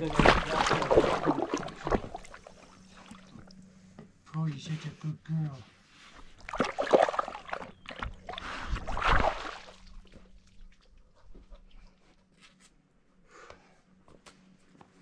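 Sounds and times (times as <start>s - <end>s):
dog splashing in water: 0.0s - 2.3s, 6.5s - 10.2s.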